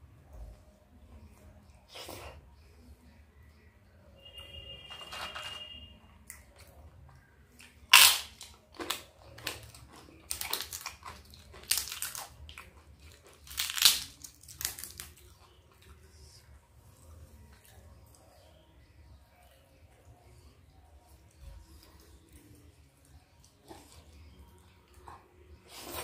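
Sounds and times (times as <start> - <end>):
crisp wafer cracking and crunching: 7.6 - 15.5.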